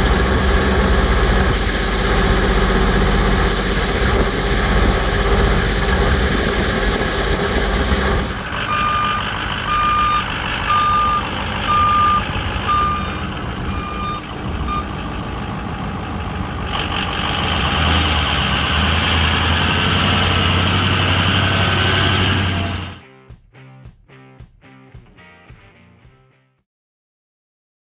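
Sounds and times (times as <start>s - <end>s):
drill rig engine running: 0.0s - 23.0s
rising engine whine: 0.0s - 23.0s
truck engine running: 0.0s - 23.0s
backup alarm beeping: 8.6s - 15.0s.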